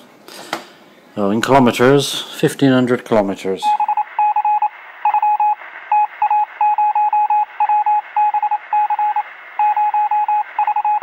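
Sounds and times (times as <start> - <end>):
morse code beeps: 3.7 - 11.0.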